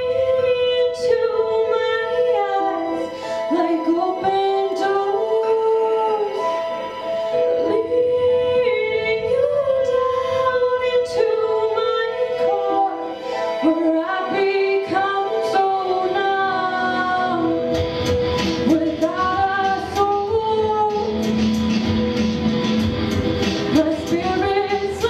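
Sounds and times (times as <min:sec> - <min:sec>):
woman singing into a microphone: 0:00.0 - 0:17.8, 0:18.6 - 0:21.2, 0:23.7 - 0:25.0
held accompaniment chords: 0:00.0 - 0:25.0.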